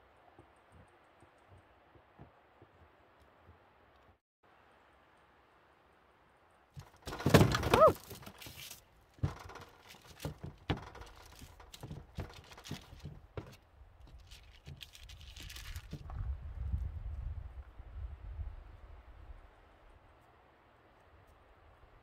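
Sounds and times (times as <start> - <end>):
taps and paper crinkles: 6.8 - 16.2
rubbing and paper noise: 7.3 - 16.1.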